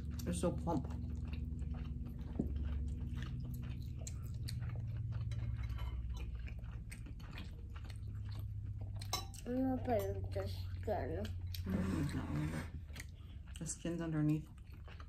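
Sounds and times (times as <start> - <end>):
wet chewing mouth clicks: 0.0 - 11.7
low hum: 0.0 - 15.0.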